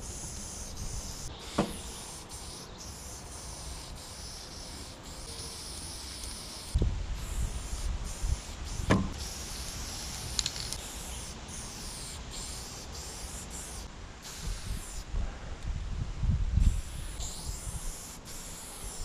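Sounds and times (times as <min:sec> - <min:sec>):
spray paint can hissing: 0:00.0 - 0:15.1, 0:16.6 - 0:19.0
sharp knock: 0:01.5 - 0:01.8, 0:08.9 - 0:09.2.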